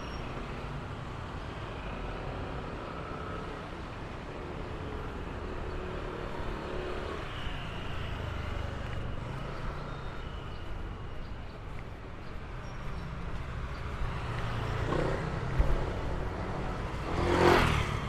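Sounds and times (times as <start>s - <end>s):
urban background hum: 0.0s - 18.0s
vehicle engines and tyres: 0.0s - 18.0s.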